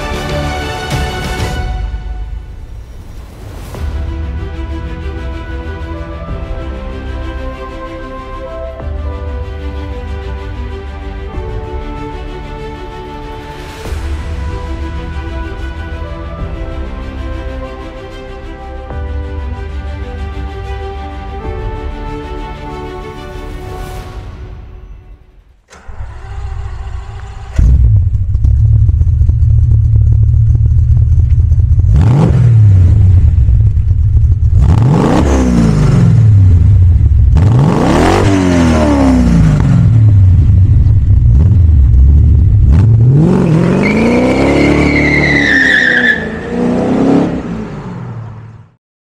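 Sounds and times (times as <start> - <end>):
car engine starting and revving: 25.7 - 48.8.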